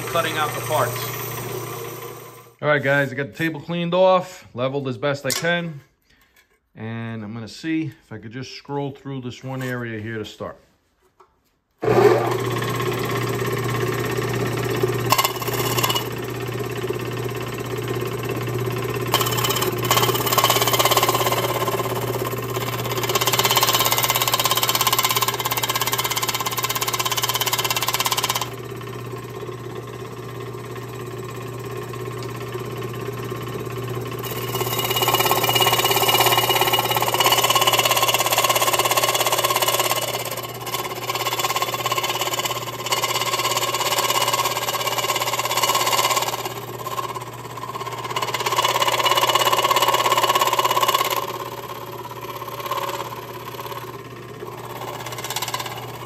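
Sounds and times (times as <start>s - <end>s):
scroll saw cutting aluminium: 0.0s - 3.0s, 11.8s - 30.0s, 32.9s - 56.0s.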